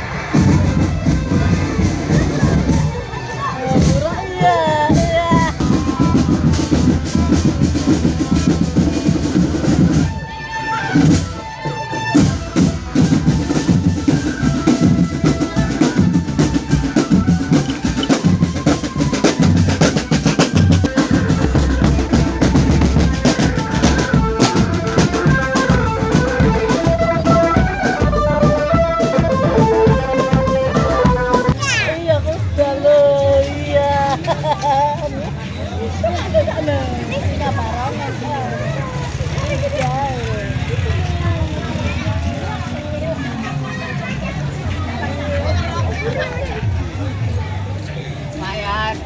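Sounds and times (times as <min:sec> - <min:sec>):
pitched melody: 0:00.0 - 0:32.2
marching snare and bass drums: 0:00.0 - 0:49.0.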